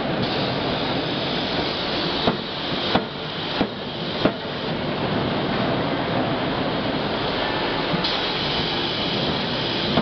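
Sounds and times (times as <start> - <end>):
machinery hiss and din: 7.2 - 10.0.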